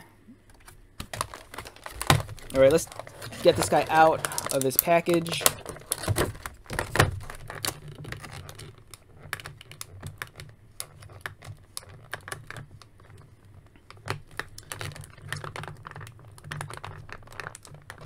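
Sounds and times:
plastic packaging crackling: 0:00.6 - 0:18.0.

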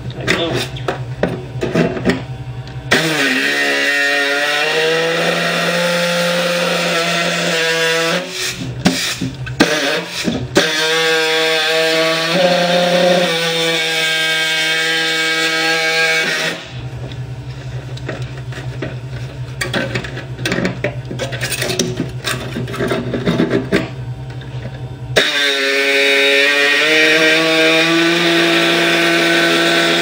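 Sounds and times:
pneumatic saw cutting sheet steel: 0:02.9 - 0:16.8, 0:25.2 - 0:30.0.

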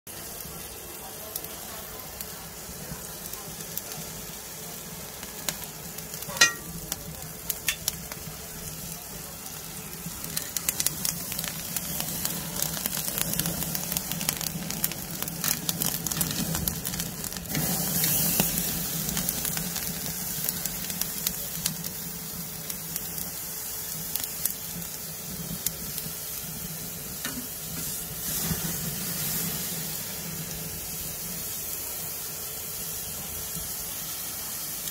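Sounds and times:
fat crackling and popping: 0:00.1 - 0:32.2
meat sizzling over charcoal: 0:00.1 - 0:34.9.

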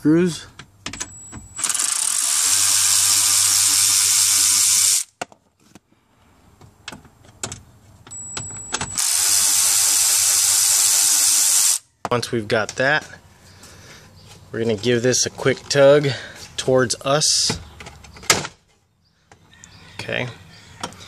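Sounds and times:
electric ratchet running: 0:01.6 - 0:05.1, 0:08.9 - 0:11.8.

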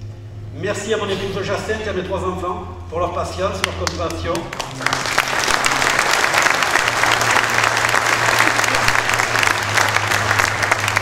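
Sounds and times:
audience applauding: 0:03.6 - 0:11.0.

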